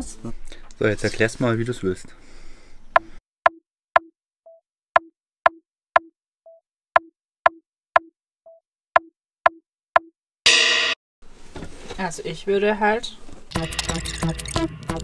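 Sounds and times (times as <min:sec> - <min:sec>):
electronic percussive clicks: 0:03.0 - 0:10.1, 0:13.5 - 0:15.0.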